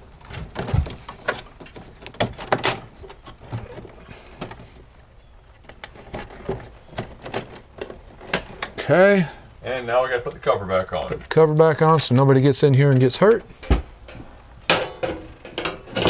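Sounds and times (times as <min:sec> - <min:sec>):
cables clicking and tapping on metal: 0:00.2 - 0:04.9, 0:05.5 - 0:08.9, 0:09.7 - 0:16.0.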